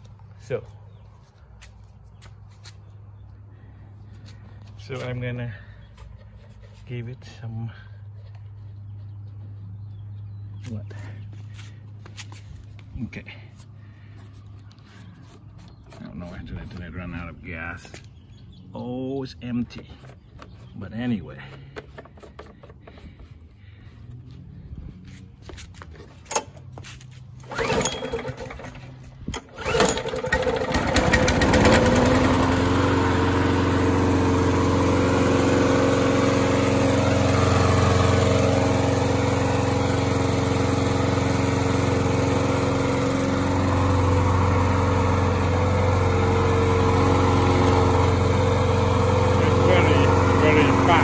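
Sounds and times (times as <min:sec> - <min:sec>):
lawn mower engine running: 0:19.6 - 0:24.7, 0:26.0 - 0:51.0.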